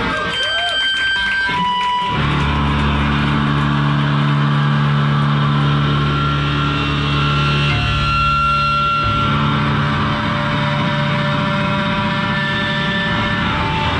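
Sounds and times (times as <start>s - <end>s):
distorted guitar chord ringing: 0.0s - 13.9s
electric guitar feedback: 0.0s - 13.9s.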